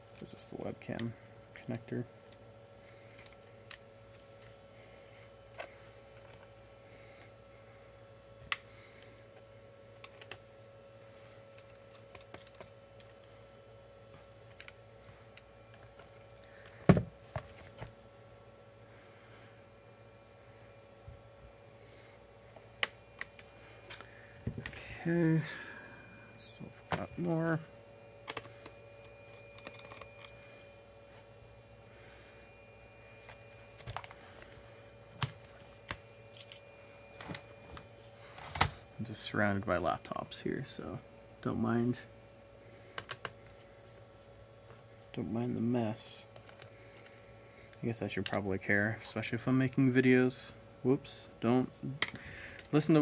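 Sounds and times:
faint steady hum: 0.0s - 53.0s.

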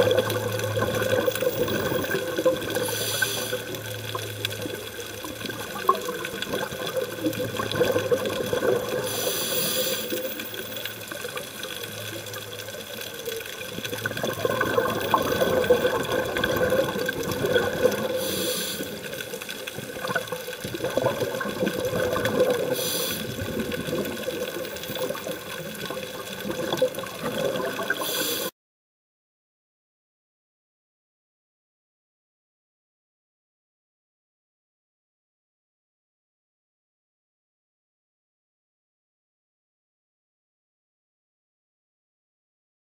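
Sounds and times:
underwater bubbling and gurgling: 0.0s - 28.5s
regulator inhalation hiss: 2.8s - 3.8s, 9.0s - 10.3s, 18.1s - 19.2s, 22.7s - 23.4s, 28.0s - 28.5s.

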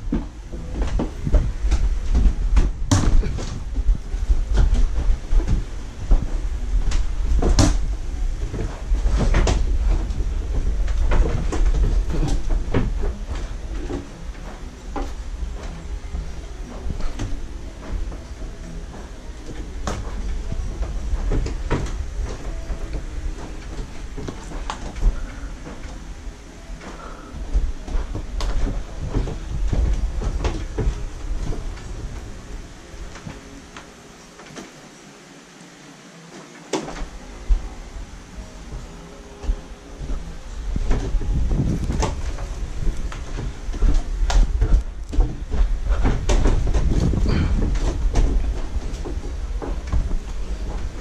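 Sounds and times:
low rumble of handling: 0.0s - 34.8s, 36.8s - 51.0s
plastic basket knocks and clatter: 0.1s - 14.1s.

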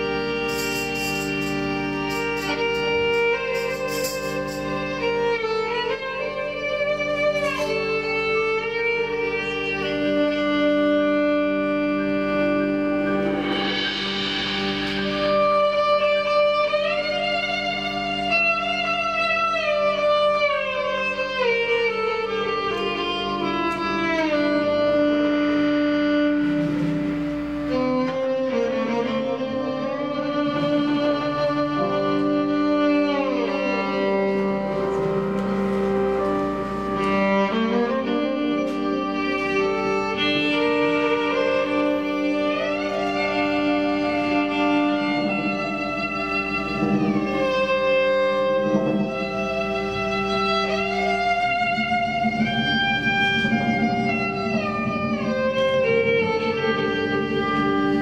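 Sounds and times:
sustained low tones: 0.0s - 19.2s, 26.2s - 58.0s
bowed strings holding long notes: 0.0s - 58.0s.

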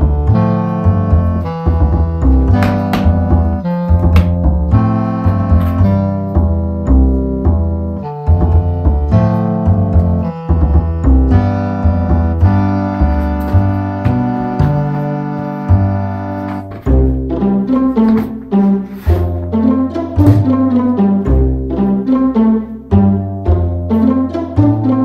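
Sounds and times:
background music with bass line: 0.0s - 25.0s.

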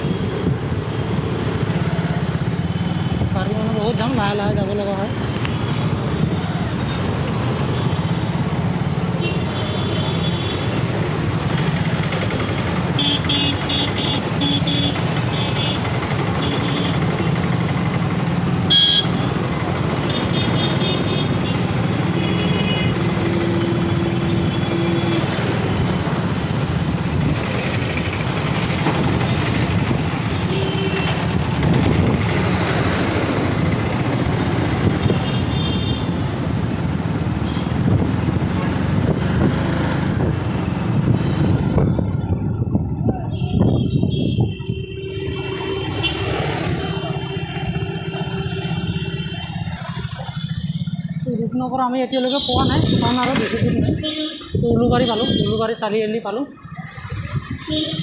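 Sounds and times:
vehicle horns beeping: 13.0s - 17.3s, 18.6s - 19.4s, 43.3s - 49.6s, 52.1s - 55.8s, 57.5s - 58.0s.

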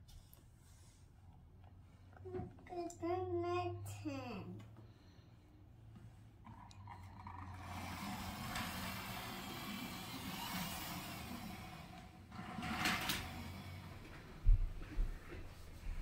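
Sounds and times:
toy truck rolling on wooden floor: 6.4s - 14.3s.

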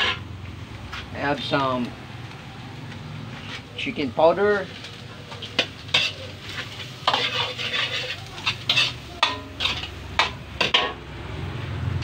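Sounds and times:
metal spatula scraping a wok: 0.0s - 0.3s, 4.6s - 11.0s
frying sizzle: 0.0s - 12.0s.

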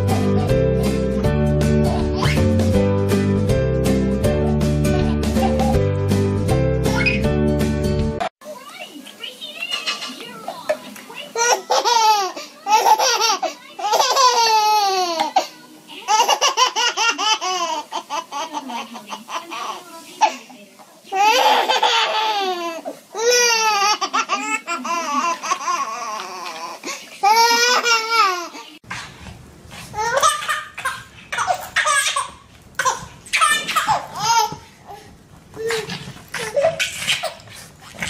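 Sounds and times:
baby laughing: 6.9s - 7.3s, 9.5s - 10.3s, 11.4s - 15.4s, 16.0s - 20.4s, 21.1s - 28.7s, 30.0s - 35.0s, 35.6s - 37.6s.

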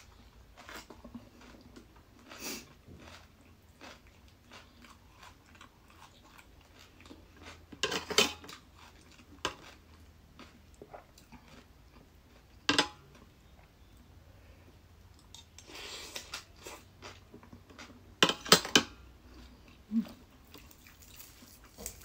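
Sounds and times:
close-up chewing: 0.0s - 7.8s, 8.4s - 14.0s, 19.2s - 22.0s.

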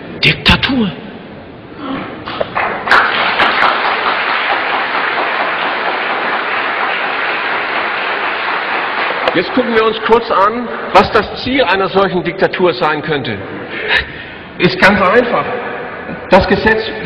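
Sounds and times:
large audience applauding: 2.5s - 10.3s.

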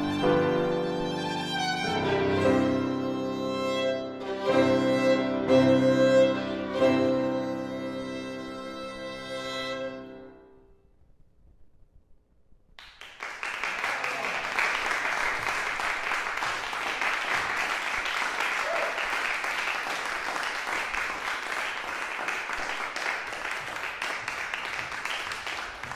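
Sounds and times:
audience applauding: 12.8s - 25.9s.

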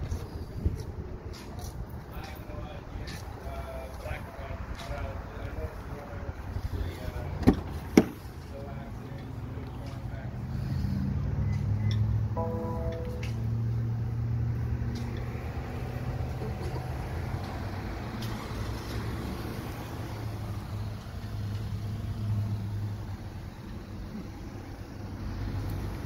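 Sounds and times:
car engine idling: 6.2s - 10.4s.

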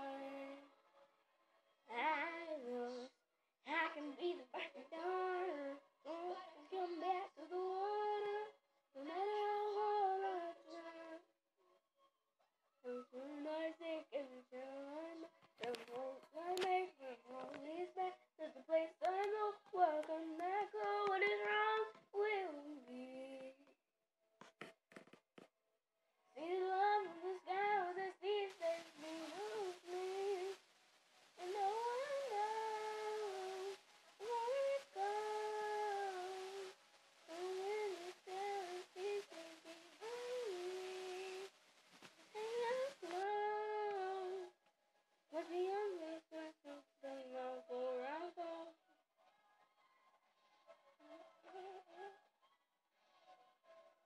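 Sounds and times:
girl singing unaccompanied: 0.0s - 0.7s, 1.9s - 11.3s, 12.8s - 23.7s, 26.3s - 30.6s, 31.4s - 41.5s, 42.2s - 44.6s, 45.3s - 48.8s, 51.4s - 52.2s.

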